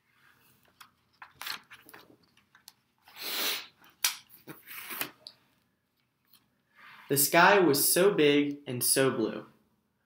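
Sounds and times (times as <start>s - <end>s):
paper rustling: 0.2s - 3.2s, 3.8s - 5.3s.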